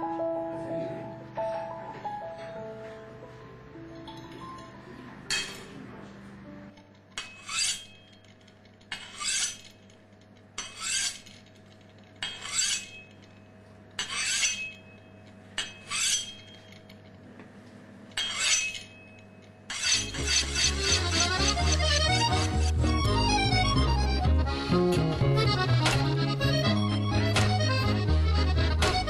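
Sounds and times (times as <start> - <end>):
music: 0.0 - 6.9, 20.0 - 29.0
metal blade scraping: 7.1 - 13.4, 14.0 - 16.9, 18.2 - 22.8.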